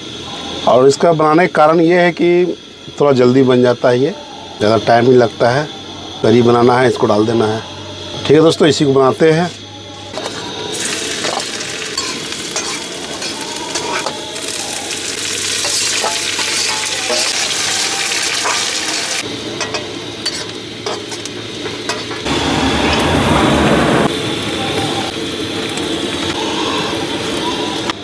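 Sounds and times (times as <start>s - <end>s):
curry sizzling in a pan: 10.2s - 22.3s.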